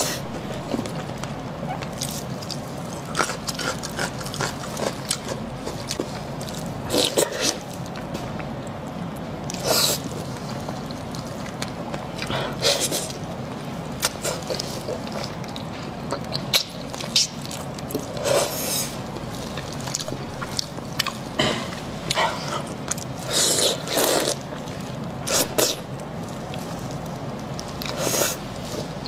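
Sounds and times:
wet slurps and chewing: 22.1s - 26.8s.

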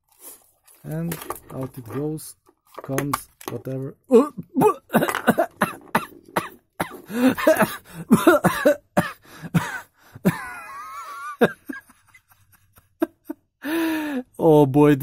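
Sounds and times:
man laughing: 4.1s - 6.2s, 7.0s - 13.5s.

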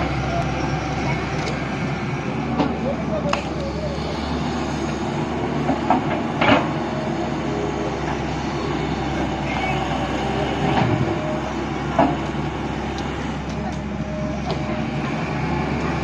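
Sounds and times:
excavator diesel engine: 0.0s - 16.0s.

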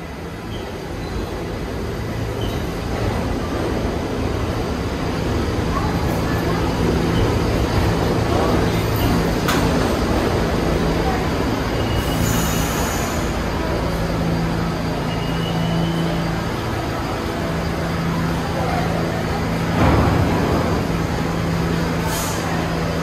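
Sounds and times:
subway train rumbling: 0.0s - 23.0s
faint high squeals: 14.9s - 16.4s.

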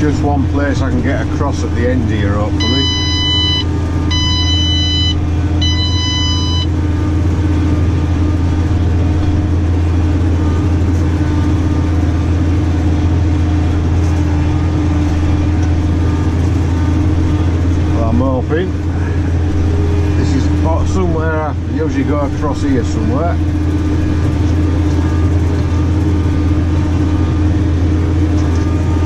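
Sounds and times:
tractor engine running: 0.0s - 29.0s
electronic beeper long beeps: 2.6s - 6.8s.

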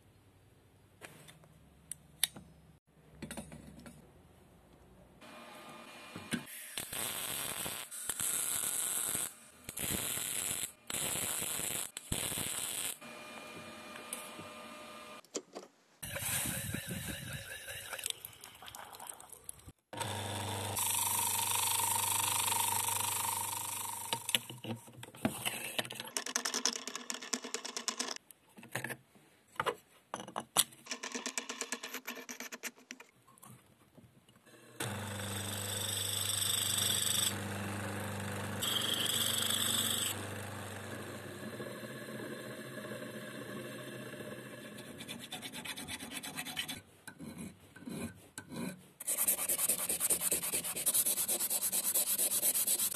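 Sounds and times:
bench grinder running: 34.8s - 44.9s
steel being ground: 49.0s - 52.9s.

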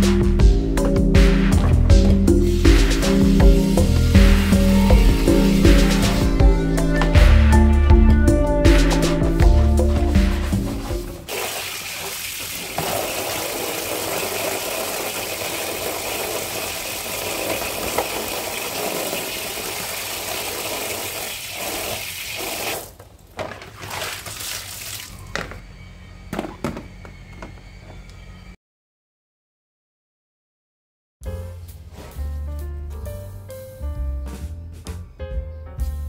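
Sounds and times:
brush scrubbing: 2.3s - 6.4s, 9.8s - 22.9s
hose water splashing into plastic tray: 11.2s - 25.1s.

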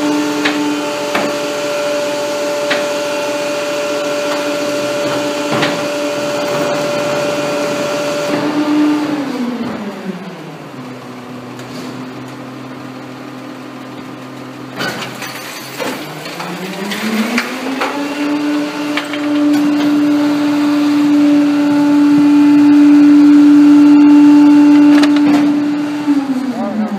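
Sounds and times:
garbage truck engine revving: 0.0s - 26.9s
hydraulic packer clanks: 0.3s - 1.8s, 2.5s - 8.8s, 14.6s - 20.4s, 24.5s - 25.8s.

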